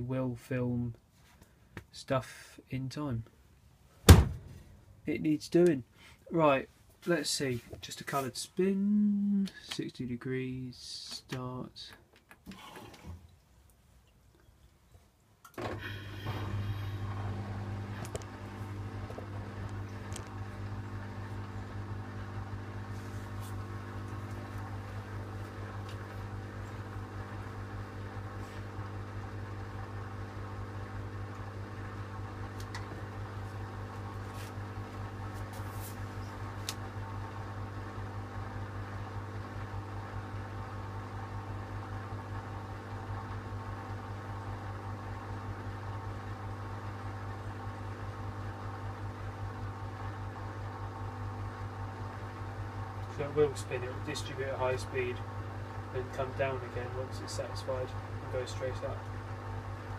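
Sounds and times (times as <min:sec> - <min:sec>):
washing machine motor hum: 0:15.5 - 0:59.9.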